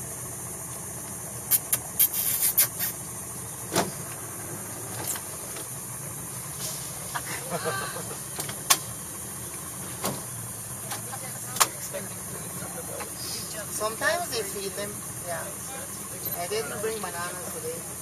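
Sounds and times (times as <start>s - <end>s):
boat outboard motor idling: 0.0s - 1.5s, 3.0s - 18.0s
high insect hiss: 0.0s - 12.4s.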